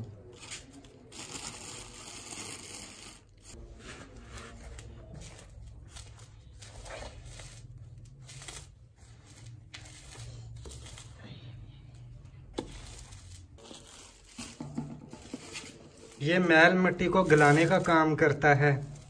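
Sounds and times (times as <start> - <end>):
plastic bag crinkling: 0.4 - 3.6, 12.7 - 19.0.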